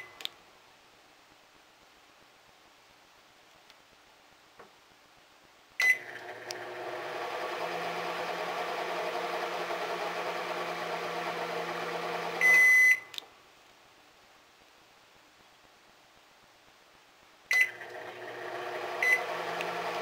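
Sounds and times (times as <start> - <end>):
microwave button beep: 5.8 - 6.1, 12.4 - 13.1
microwave humming: 5.8 - 12.8, 17.6 - 20.0
long loud microwave beep: 12.4 - 13.1, 19.0 - 19.4.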